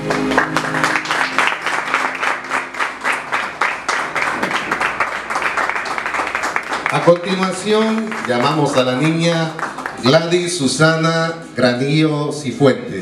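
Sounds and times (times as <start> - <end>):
audience applause: 0.0 - 10.6
background music: 0.0 - 13.0.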